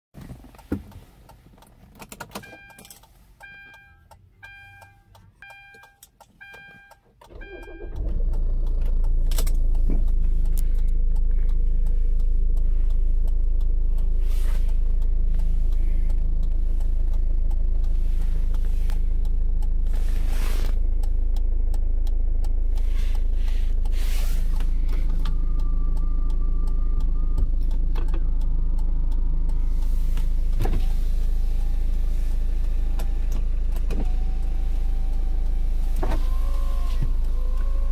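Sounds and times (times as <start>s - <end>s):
diesel engine starting and idling: 0.3s - 37.9s
dashboard warning chime beeping: 2.4s - 8.2s.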